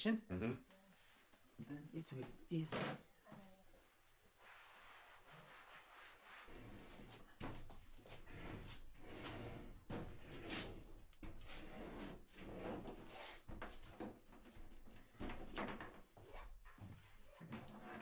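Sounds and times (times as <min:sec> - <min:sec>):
washing machine scraping on floor: 0:06.4 - 0:07.2, 0:08.1 - 0:13.5.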